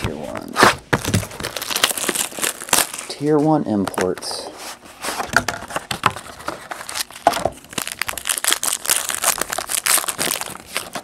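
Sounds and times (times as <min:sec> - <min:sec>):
plastic wrapper crinkling: 0:01.0 - 0:04.4, 0:05.9 - 0:11.0.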